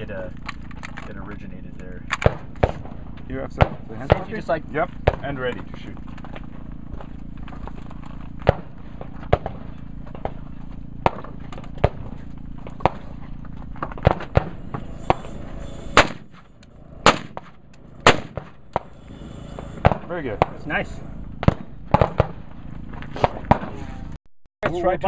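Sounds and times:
steady low hum: 0.0 - 25.0
rifle gunshots: 2.1 - 4.3, 8.4 - 10.4, 11.0 - 13.2, 13.8 - 15.2, 15.9 - 18.9, 19.8 - 20.8, 21.4 - 22.5, 23.2 - 23.8.

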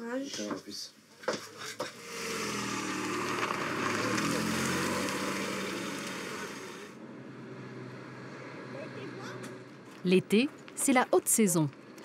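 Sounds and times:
motor vehicle passing: 1.6 - 10.8.

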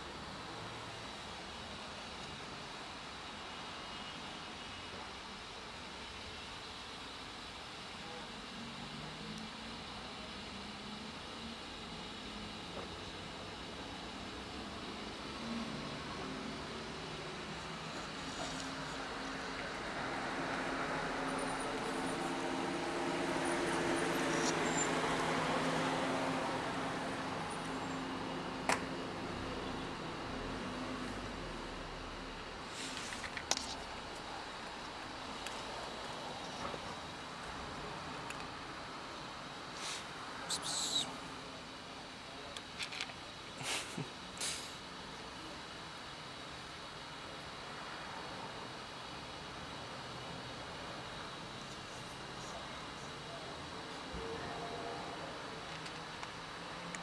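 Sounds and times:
street background hiss: 0.0 - 57.0.

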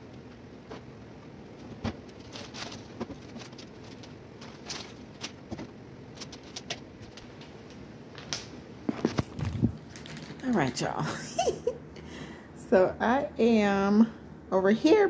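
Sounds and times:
low room noise: 0.0 - 15.0
plastic package rustling: 1.5 - 7.6, 8.9 - 10.9.

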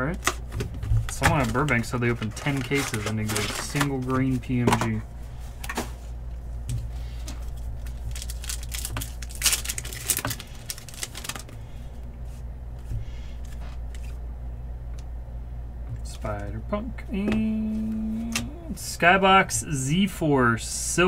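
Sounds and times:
steady low hum: 0.0 - 21.0
foil wrapper crinkling and tearing: 1.0 - 4.5, 7.4 - 11.6.

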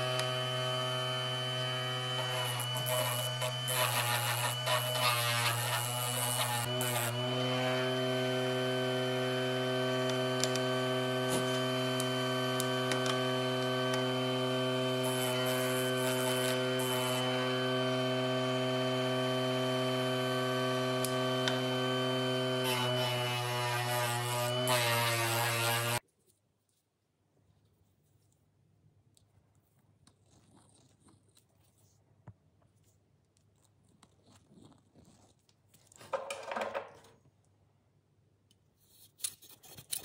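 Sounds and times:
disc sander motor hum: 0.0 - 26.0.

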